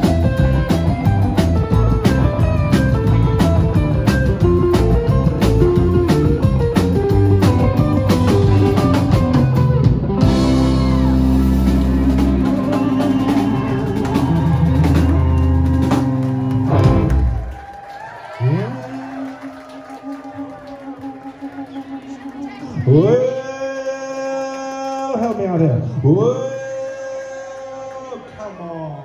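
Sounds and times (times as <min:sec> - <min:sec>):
rockabilly band playing: 0:00.0 - 0:17.8, 0:18.4 - 0:23.6.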